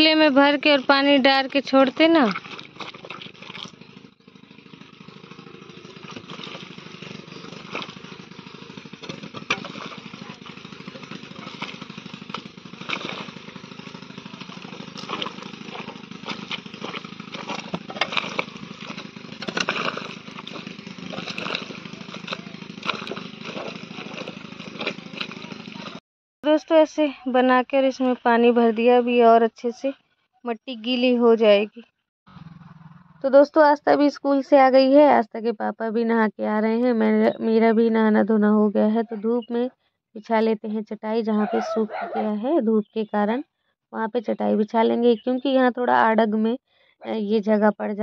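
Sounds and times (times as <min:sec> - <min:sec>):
steady motor drone: 0:00.0 - 0:26.0, 0:30.8 - 0:33.9
bare feet squelching wet mud: 0:00.6 - 0:04.0, 0:05.6 - 0:26.0.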